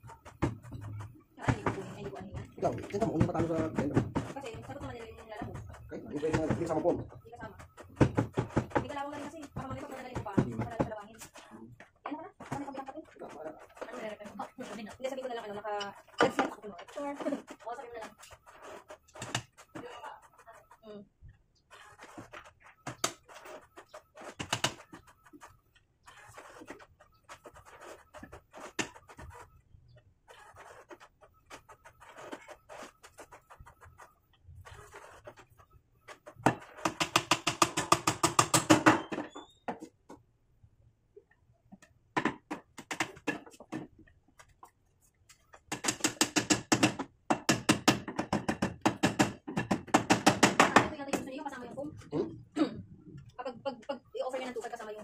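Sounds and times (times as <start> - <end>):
hammer driving nails into wood: 36.4 - 39.3, 45.7 - 50.9.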